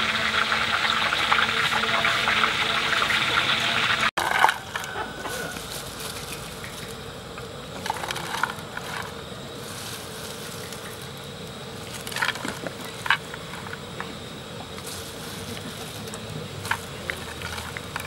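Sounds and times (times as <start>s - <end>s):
faint steady hum: 0.0s - 18.0s
crunchy rattle of fried insects: 4.2s - 18.0s.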